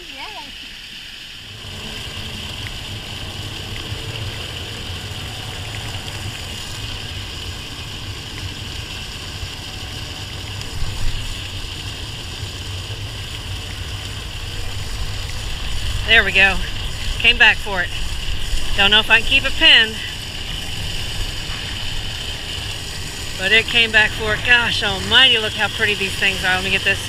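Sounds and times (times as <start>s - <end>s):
river water running: 0.0s - 27.0s
wind buffeting microphone: 13.5s - 25.2s.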